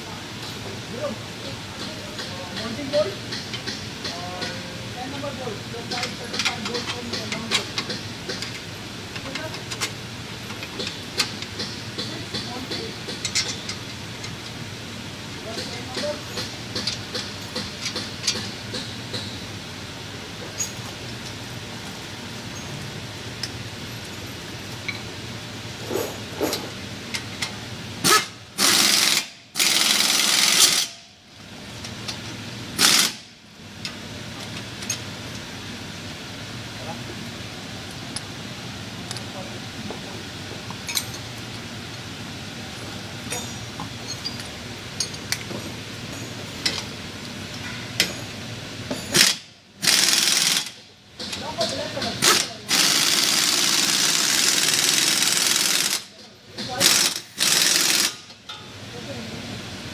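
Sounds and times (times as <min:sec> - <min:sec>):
impact wrench rattling: 0:28.0 - 0:31.0, 0:32.8 - 0:33.2, 0:49.1 - 0:51.4, 0:52.1 - 0:56.1, 0:56.7 - 0:58.3.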